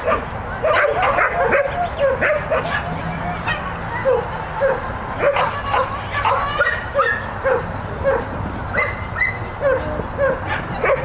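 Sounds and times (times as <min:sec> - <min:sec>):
dog barking: 0:00.1 - 0:02.9.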